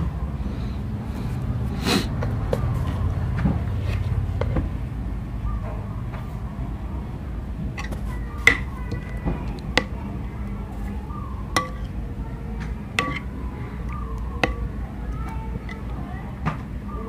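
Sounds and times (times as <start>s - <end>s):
spoon stirring thick sauce: 7.6s - 16.4s
spoon clinking against bowl: 11.5s - 12.0s, 13.0s - 14.7s.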